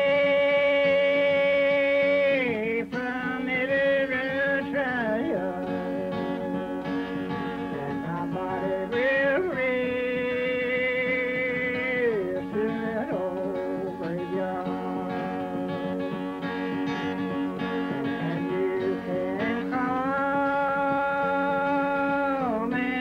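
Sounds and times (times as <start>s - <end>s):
man singing: 0.0s - 23.0s
plucked string instrument: 0.0s - 23.0s.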